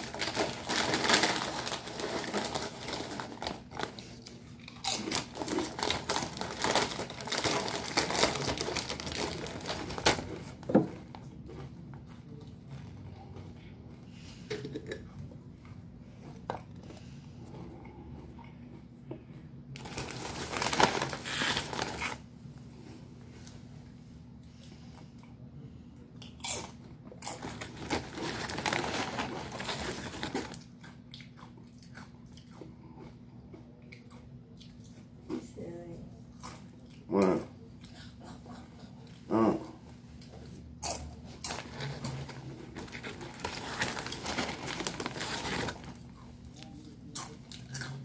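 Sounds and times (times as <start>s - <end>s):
plastic chip bag crinkling: 0.0s - 11.0s, 19.8s - 22.2s, 27.2s - 30.8s, 40.8s - 48.0s.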